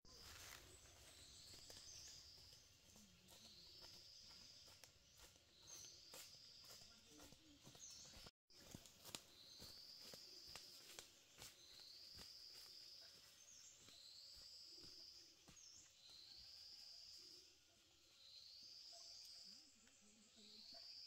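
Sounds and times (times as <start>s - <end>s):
footsteps crunching on dry leaves: 0.1s - 16.4s.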